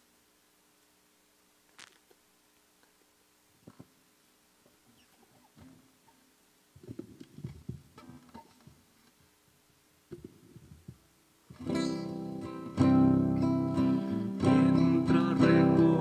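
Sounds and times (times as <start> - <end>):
acoustic guitar strumming chords: 11.5 - 16.0.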